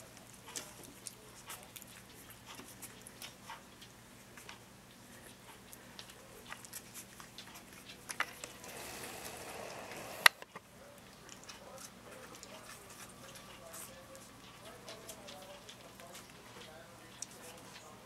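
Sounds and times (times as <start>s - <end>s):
puppies rustling on bedding: 11.0s - 18.0s.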